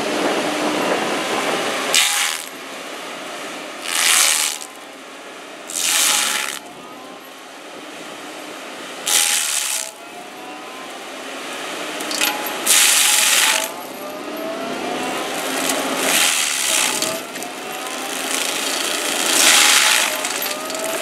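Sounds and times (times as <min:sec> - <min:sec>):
stump grinder grinding wood: 0:01.9 - 0:02.6, 0:03.8 - 0:04.8, 0:05.7 - 0:06.8, 0:09.1 - 0:10.0, 0:12.0 - 0:21.0.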